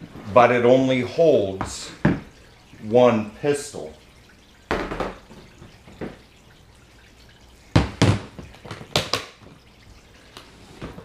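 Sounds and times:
plastic cases knocking on countertop: 7.8 - 9.4.

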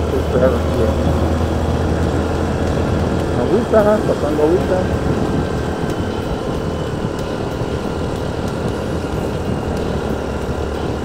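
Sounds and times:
motorcycle engine running: 0.0 - 11.0
wind noise: 0.0 - 11.0.

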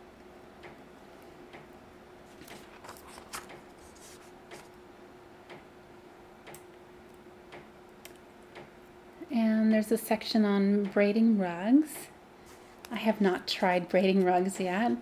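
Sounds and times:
faint steady hum: 0.0 - 15.0
book pages turning: 2.2 - 4.7.

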